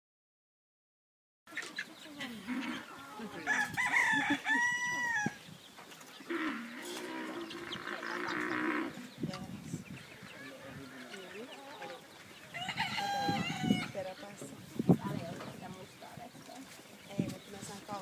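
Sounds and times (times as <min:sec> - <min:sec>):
loud rising animal call: 0:06.3 - 0:09.0.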